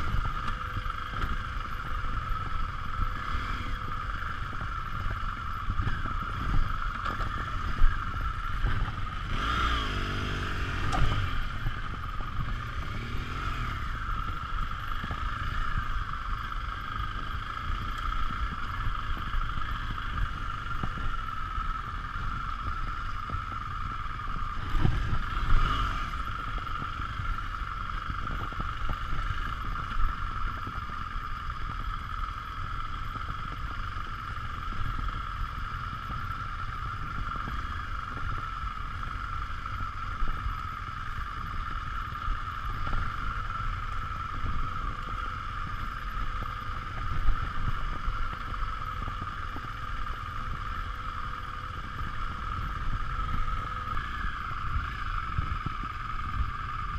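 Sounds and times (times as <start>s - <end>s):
motorcycle engine running: 0.0s - 56.9s
motorcycle knocks and rattles: 4.2s - 13.2s.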